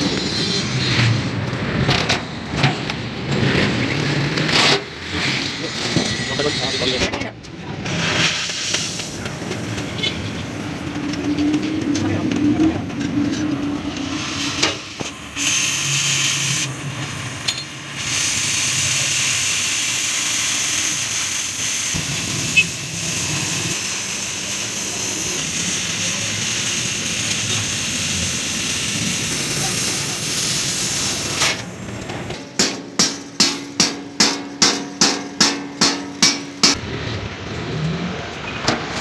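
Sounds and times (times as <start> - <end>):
cutting torch hissing: 5.0 - 7.2, 7.8 - 34.0.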